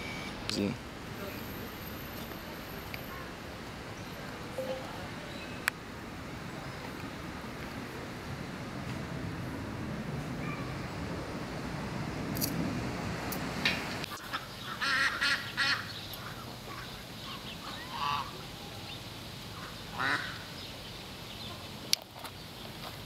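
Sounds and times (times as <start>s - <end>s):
low steady background noise: 0.0s - 23.0s
waterfowl calling: 14.2s - 18.4s, 19.6s - 20.4s.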